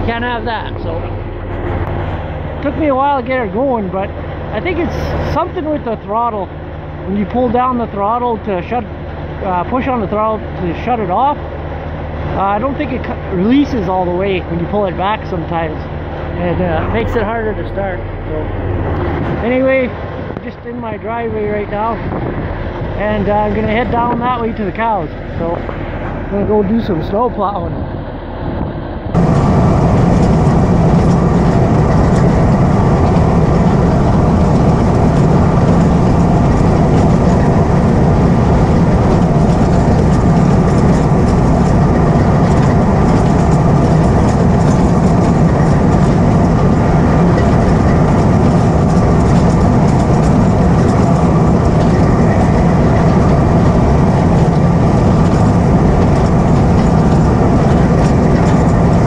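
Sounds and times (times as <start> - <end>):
bulldozer diesel engine running: 0.0 - 59.0
steel tracks clattering: 29.2 - 59.0.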